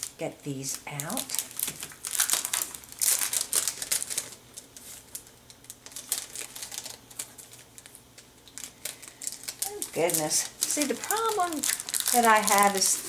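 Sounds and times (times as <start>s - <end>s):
cellophane crinkling: 0.0s - 13.0s.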